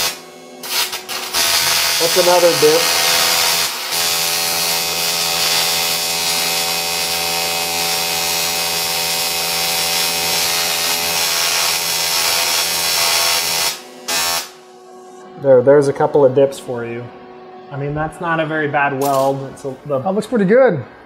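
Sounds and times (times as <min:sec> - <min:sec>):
welding arc buzzing: 0:00.0 - 0:14.9, 0:19.0 - 0:19.8.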